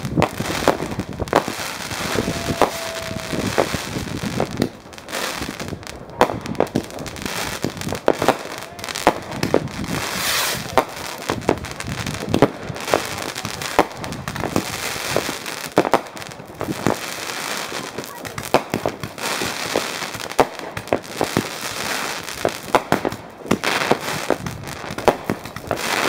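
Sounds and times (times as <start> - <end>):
fireworks bangs and crackles: 0.0 - 26.0
hissing rush: 1.4 - 4.6.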